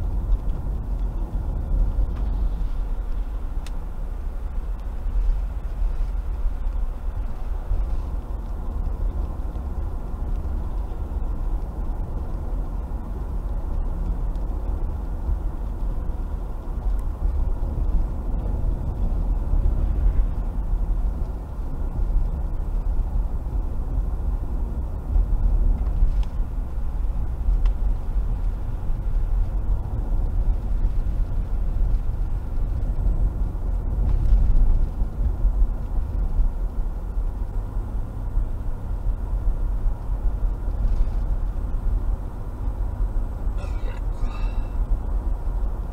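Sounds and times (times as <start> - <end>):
tyres and engine rumble: 0.0 - 45.9.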